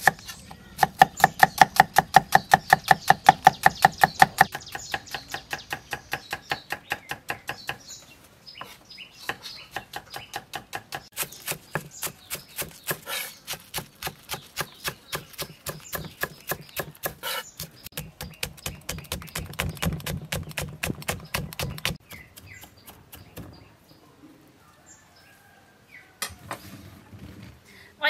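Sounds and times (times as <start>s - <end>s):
knife chopping on wooden board: 9.3s - 23.4s.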